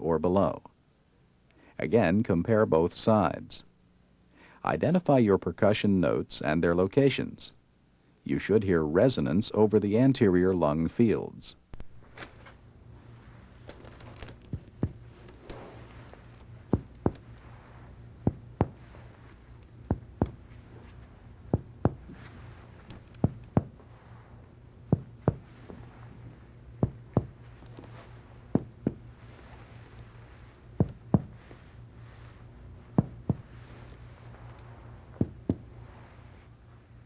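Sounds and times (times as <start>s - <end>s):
finger tapping on chest: 16.7s - 17.3s, 18.3s - 18.8s, 19.6s - 20.5s, 21.5s - 22.2s, 22.8s - 23.8s, 24.9s - 25.5s, 26.8s - 27.9s, 28.5s - 29.1s, 30.8s - 31.4s, 33.0s - 33.5s, 34.5s - 35.7s.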